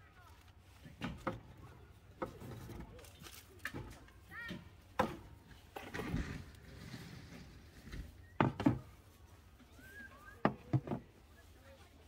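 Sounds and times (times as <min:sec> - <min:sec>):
items knocking on wooden shelves: 0:10.4 - 0:11.1.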